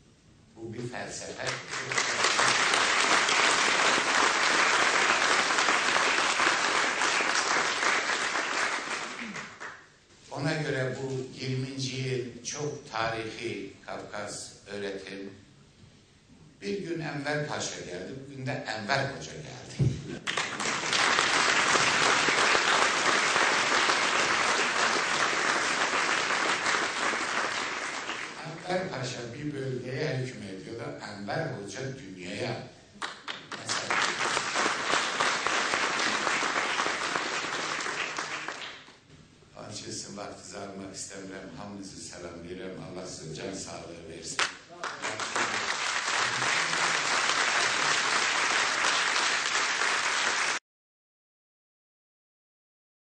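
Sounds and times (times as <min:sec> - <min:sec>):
audience applauding: 0:01.4 - 0:09.8, 0:20.2 - 0:28.6, 0:33.0 - 0:39.0, 0:44.4 - 0:50.6.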